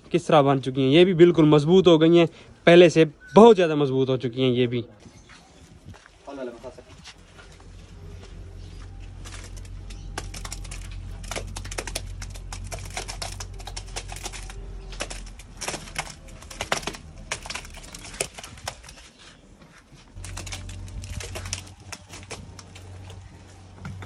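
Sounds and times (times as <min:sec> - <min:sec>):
wheelbarrow rattling over dirt: 0:20.2 - 0:24.0.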